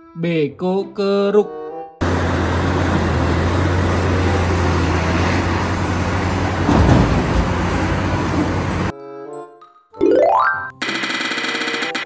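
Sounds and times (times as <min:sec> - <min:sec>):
excavator engine drone: 0:02.0 - 0:08.9, 0:10.8 - 0:12.0
heavy machinery noise: 0:02.0 - 0:08.9.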